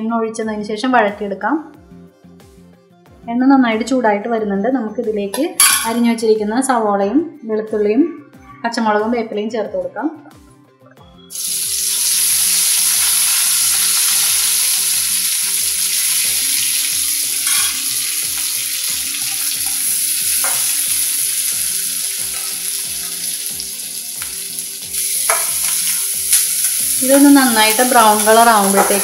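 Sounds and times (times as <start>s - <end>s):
vegetables sizzling in hot oil: 11.3s - 29.0s.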